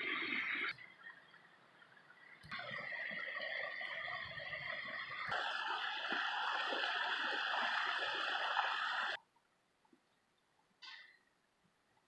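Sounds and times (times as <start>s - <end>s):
mountain stream rushing: 0.0s - 9.2s.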